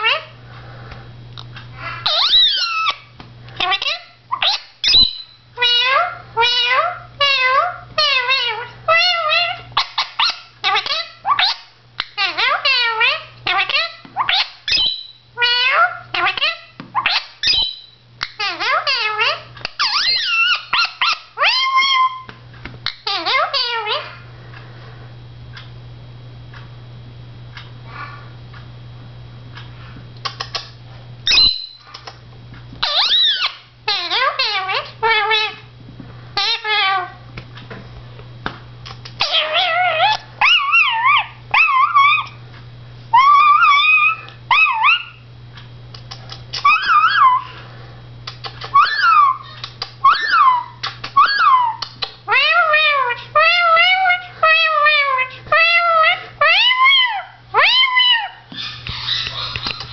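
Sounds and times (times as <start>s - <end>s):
parakeet chattering: 2.0s - 22.3s, 32.8s - 35.6s, 39.1s - 42.4s, 43.1s - 45.2s, 46.1s - 47.5s, 48.3s - 59.9s.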